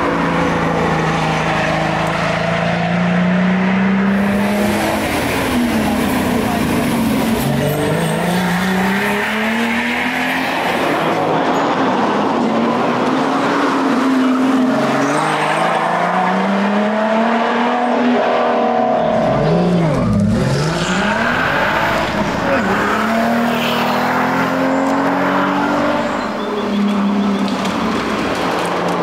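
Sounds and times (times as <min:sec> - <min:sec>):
car engine revving hard: 0:13.7 - 0:26.1.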